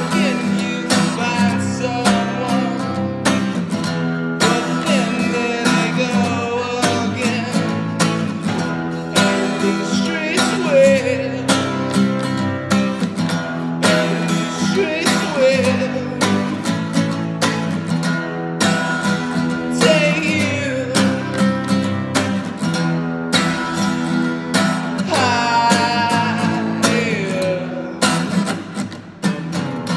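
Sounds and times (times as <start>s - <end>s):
man singing: 0.0s - 3.5s, 4.3s - 12.7s, 13.5s - 17.6s, 19.0s - 21.9s, 24.6s - 28.6s
strummed acoustic guitar: 0.0s - 29.9s.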